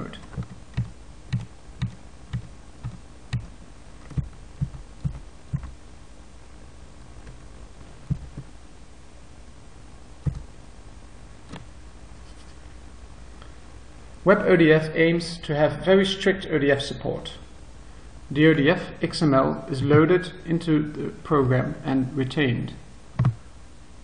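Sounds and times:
keyboard keys clicking: 0:00.0 - 0:03.5, 0:04.1 - 0:05.8, 0:10.2 - 0:10.5
steady low hum: 0:00.0 - 0:24.0.

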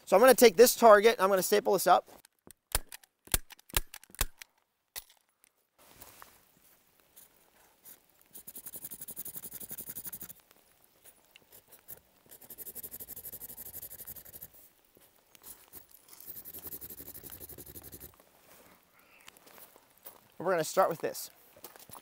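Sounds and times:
marker scribbling on paper: 0:07.2 - 0:10.4, 0:11.5 - 0:14.5, 0:15.4 - 0:18.1.

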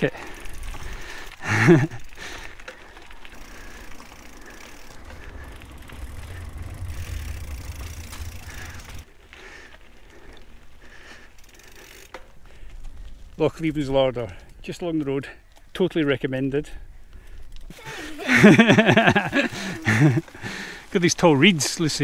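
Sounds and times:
bike tyres rolling on gravel: 0:00.0 - 0:22.0
bike rumbling over wooden bridge: 0:03.2 - 0:09.1.

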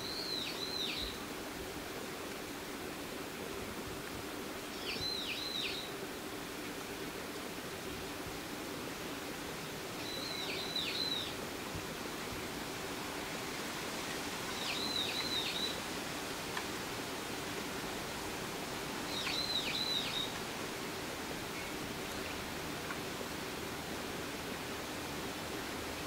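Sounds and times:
steady outdoor hiss: 0:00.0 - 0:26.0
bird calling: 0:14.5 - 0:15.8, 0:19.1 - 0:20.4.

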